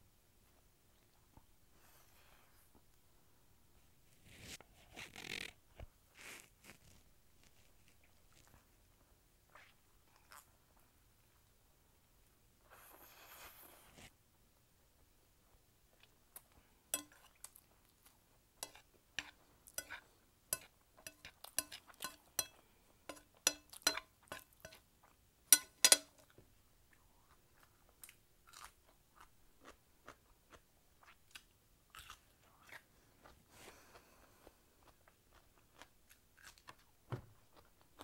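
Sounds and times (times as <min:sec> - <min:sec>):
person chewing noodles: 0:26.9 - 0:36.9.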